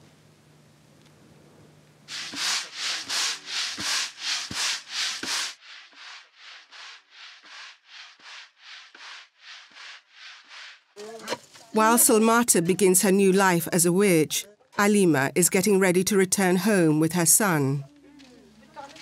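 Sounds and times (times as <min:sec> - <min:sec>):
grain swishing in wooden bowl: 0:02.1 - 0:11.9.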